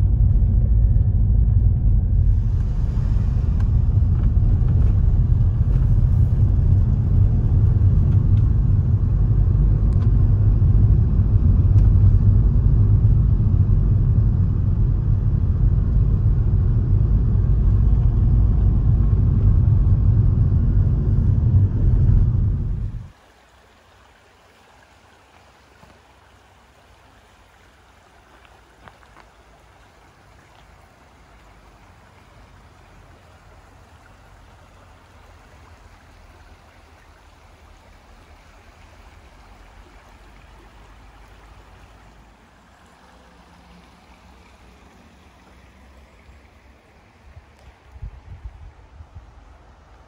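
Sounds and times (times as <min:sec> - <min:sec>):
low rumble: 0:00.0 - 0:23.2
stream flowing over stones: 0:21.7 - 0:50.0.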